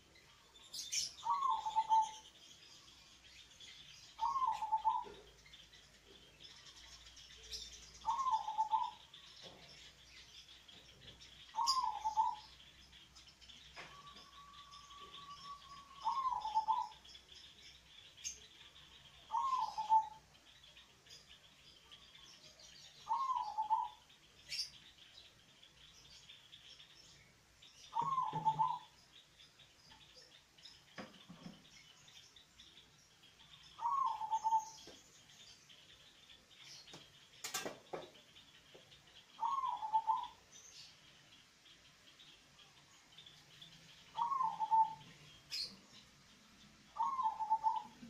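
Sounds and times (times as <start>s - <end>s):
dove cooing: 0.9s - 2.2s, 4.2s - 5.3s, 8.0s - 9.0s, 11.5s - 12.5s, 13.9s - 17.0s, 19.3s - 20.2s, 23.1s - 24.0s, 28.0s - 28.9s, 33.8s - 34.8s, 39.4s - 40.4s, 44.1s - 45.0s, 47.0s - 48.0s.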